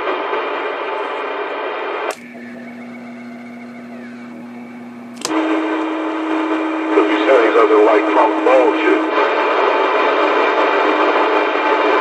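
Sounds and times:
sharp click: 0:02.1 - 0:02.5, 0:05.1 - 0:05.4
low electrical hum: 0:02.1 - 0:11.8.

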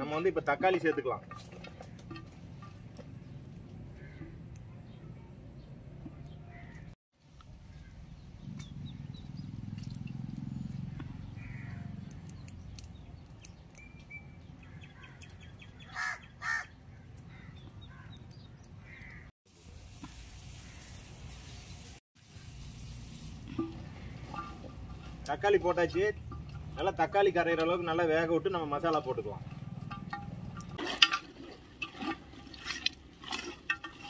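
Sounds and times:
crow cawing: 0:11.3 - 0:12.0, 0:15.8 - 0:18.2, 0:18.8 - 0:19.3.

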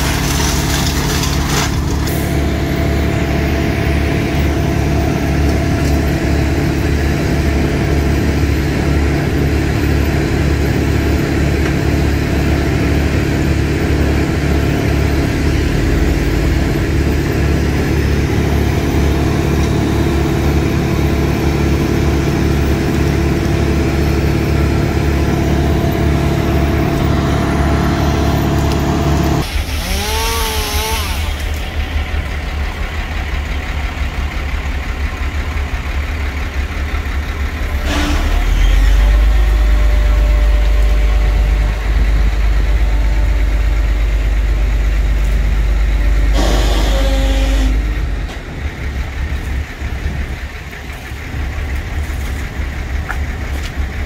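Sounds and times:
truck engine running: 0:00.0 - 0:54.0.

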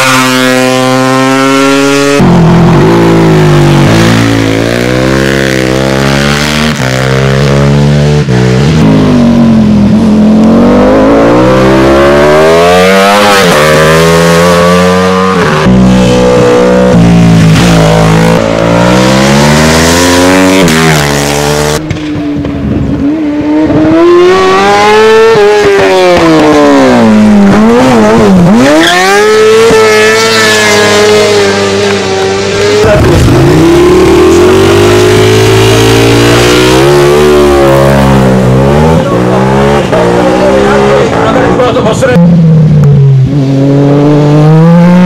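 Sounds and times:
racing engines at full throttle: 0:00.0 - 0:45.0.

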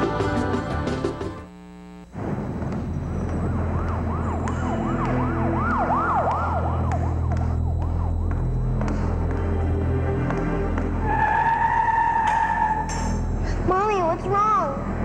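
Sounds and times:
low steady drone: 0:01.4 - 0:11.1
siren-like tone sweeping: 0:02.3 - 0:13.3.

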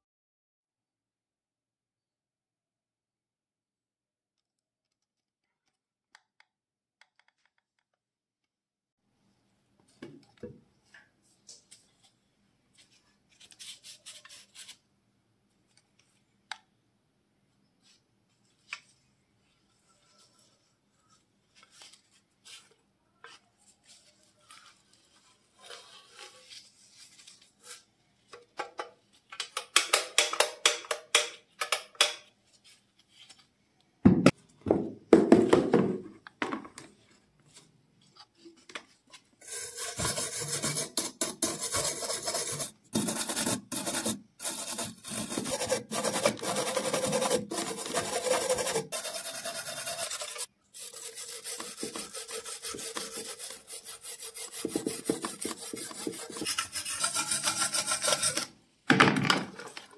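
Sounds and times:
brush scrubbing metal: 0:39.4 - 0:58.5.

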